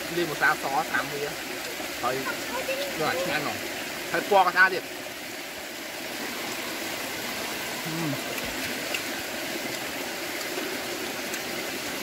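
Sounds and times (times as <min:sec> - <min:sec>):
heavy rain hissing: 0:00.0 - 0:12.0
person short low vocal sound: 0:07.8 - 0:08.4.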